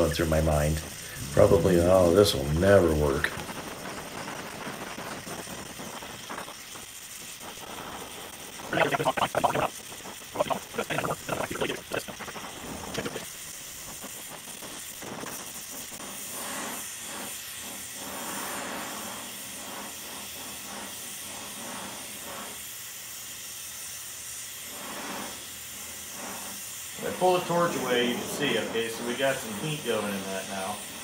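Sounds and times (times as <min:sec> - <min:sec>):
torch flame hissing: 0:00.0 - 0:31.0
fast garbled voice: 0:08.7 - 0:09.7, 0:10.4 - 0:13.2.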